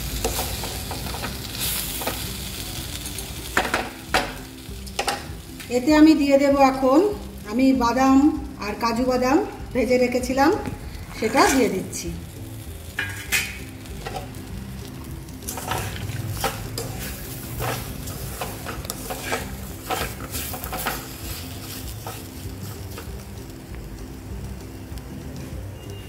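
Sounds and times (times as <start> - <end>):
light sizzle: 0.0 - 26.0
spatula scraping metal pan: 12.8 - 14.4, 15.4 - 23.0.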